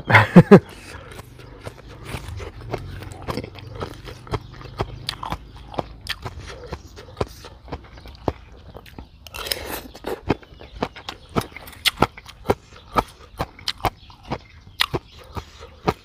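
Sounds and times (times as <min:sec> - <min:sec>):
chewing and crunching: 0:00.0 - 0:16.0
wet mouth clicks: 0:00.6 - 0:16.0.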